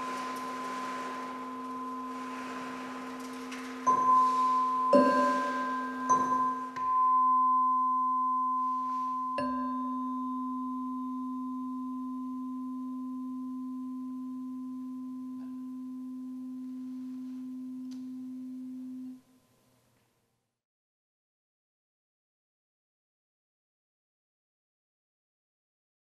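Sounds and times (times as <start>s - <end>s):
tuning forks ringing: 0.0s - 19.2s
tuning fork struck metallic ping: 3.9s - 19.2s.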